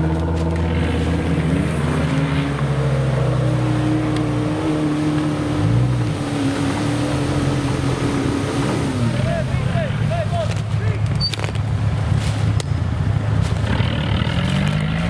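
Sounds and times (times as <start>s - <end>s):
buggy engine revving hard: 0.0s - 10.5s, 12.9s - 15.0s
wheels spinning in loose dirt: 10.3s - 15.0s.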